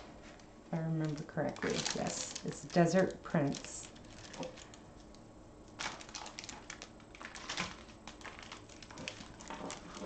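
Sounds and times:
canvas and plastic rustling: 0.1s - 10.0s.

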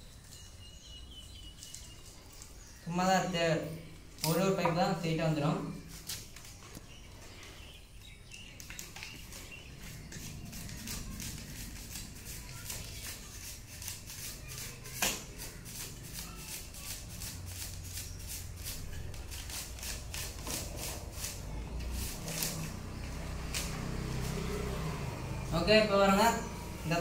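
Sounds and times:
hands rustling electrical wire: 5.7s - 24.7s.

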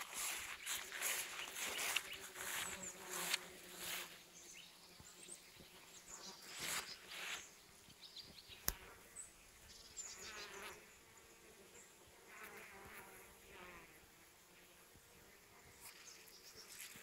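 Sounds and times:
bees buzzing: 0.0s - 7.8s.

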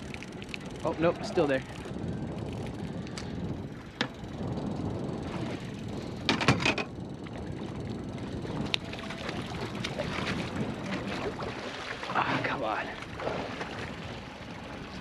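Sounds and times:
boat motor running: 0.0s - 15.0s.

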